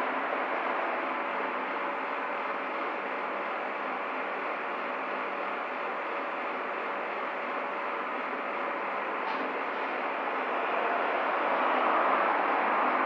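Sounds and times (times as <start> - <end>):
road traffic noise: 9.2 - 13.0.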